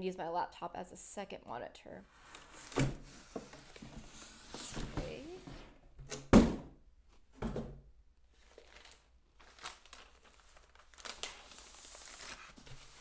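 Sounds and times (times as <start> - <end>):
plastic crinkling and rustling: 8.3 - 13.0.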